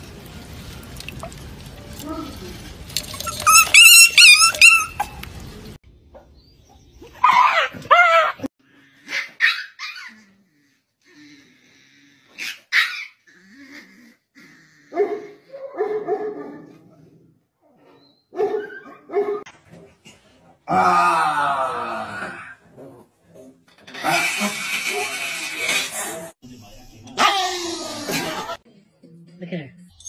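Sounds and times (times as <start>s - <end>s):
puppy yapping and whimpering: 3.1s - 5.2s
growly barks: 12.1s - 17.4s.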